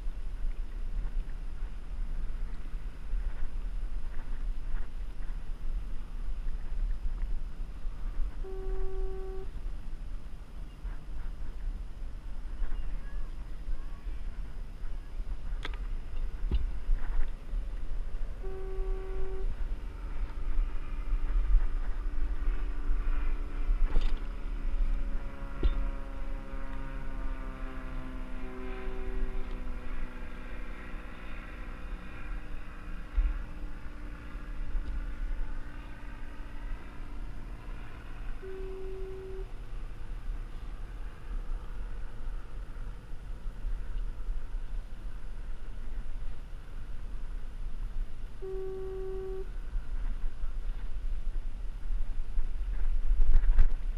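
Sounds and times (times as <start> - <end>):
boat engine drone: 0.0 - 53.9
low rumble: 0.0 - 53.9
horn tone: 8.3 - 9.6, 18.3 - 19.6, 28.0 - 29.8, 38.4 - 39.6, 48.4 - 49.5.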